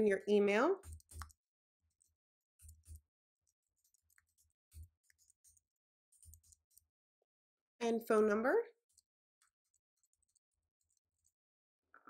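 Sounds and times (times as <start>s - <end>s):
keyboard typing: 0.8s - 6.9s, 8.9s - 11.4s.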